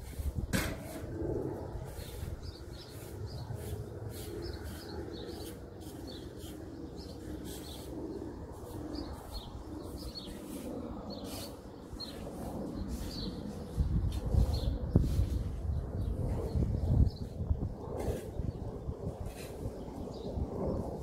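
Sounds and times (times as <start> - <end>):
steady low rumble: 0.0 - 21.0
small birds chirping: 1.6 - 20.8.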